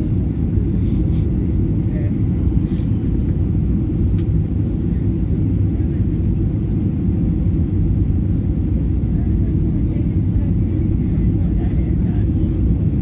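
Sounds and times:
airplane cabin engine rumble: 0.0 - 13.0.

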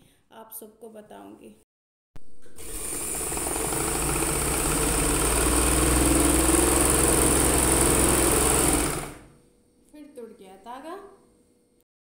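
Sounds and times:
electric sewing machine running: 2.5 - 9.4.

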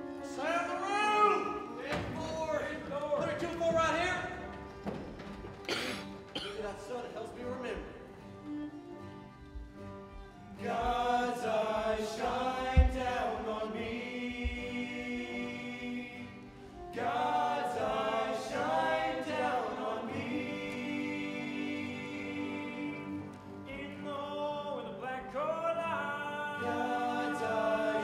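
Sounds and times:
men singing in harmony: 10.6 - 28.0
low thump: 12.7 - 13.2.

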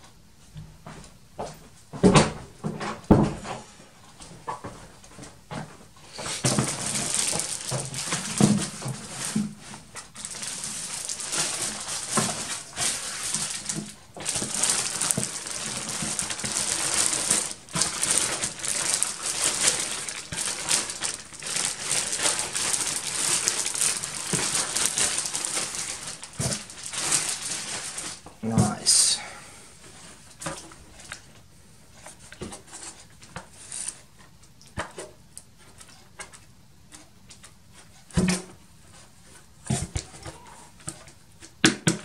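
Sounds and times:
plastic bags crinkling: 6.0 - 31.4.

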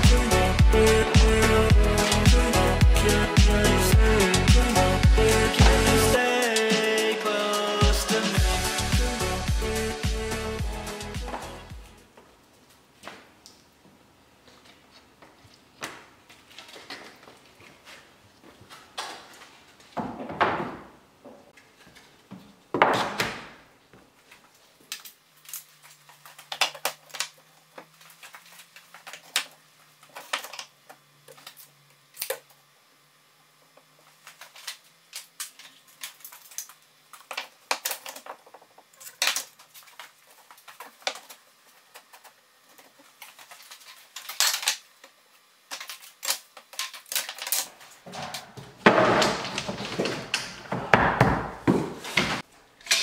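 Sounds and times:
wooden slats clattering: 48.1 - 53.0.

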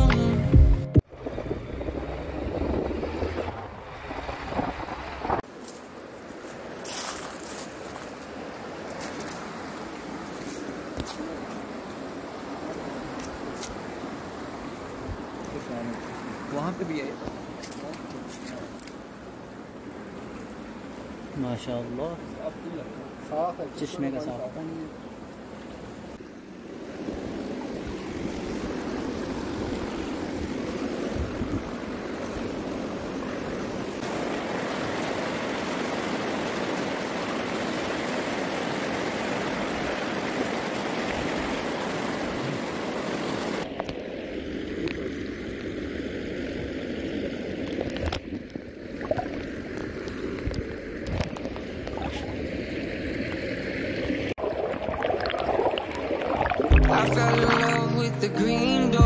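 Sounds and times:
stream rushing over stones: 2.6 - 59.0
muffled underwater gurgling: 54.8 - 58.1.

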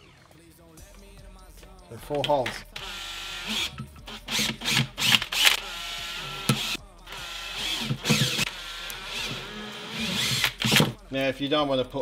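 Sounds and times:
cordless drill boring plastic pipe: 2.2 - 11.0.

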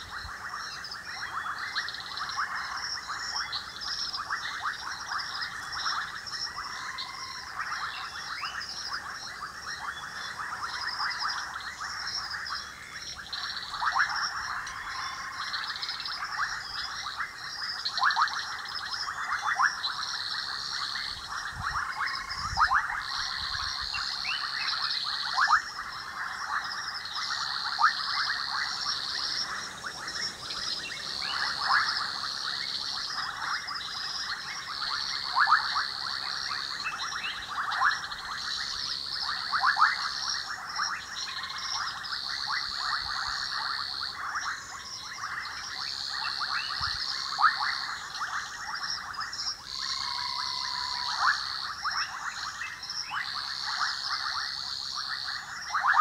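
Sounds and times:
frogs clicking calls: 0.0 - 56.0
high pulsing frog chorus: 0.0 - 56.0.

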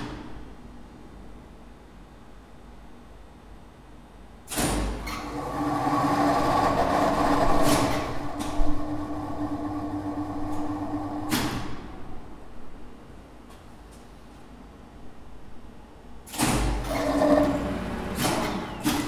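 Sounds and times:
lift machine humming and whining: 5.0 - 13.4, 16.8 - 19.0.

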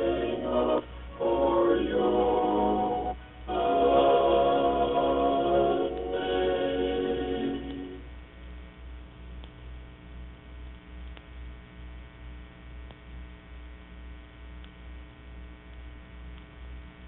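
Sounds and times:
low throb: 0.0 - 8.1
electrical mains hum: 0.0 - 17.0
faint click: 9.4 - 9.6, 10.7 - 11.5, 12.8 - 13.1, 14.6 - 14.8, 15.7 - 16.6.

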